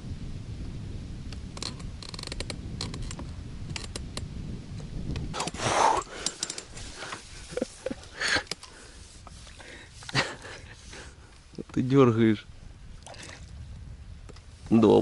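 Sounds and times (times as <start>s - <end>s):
rustle: 0.0s - 15.0s
wind on microphone: 0.0s - 15.0s
fishing gear clicking and creaking: 1.5s - 4.3s, 5.2s - 12.0s.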